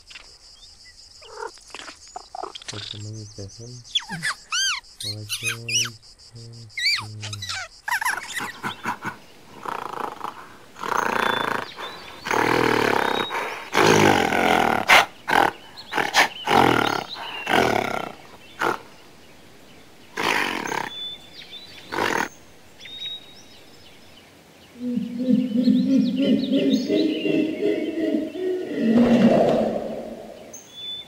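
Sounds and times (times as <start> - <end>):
high squeaking chirps: 1.2 - 19.2
gorilla growling and grunting: 3.9 - 5.9, 6.5 - 19.0, 20.1 - 21.0, 21.9 - 22.3, 24.8 - 30.5.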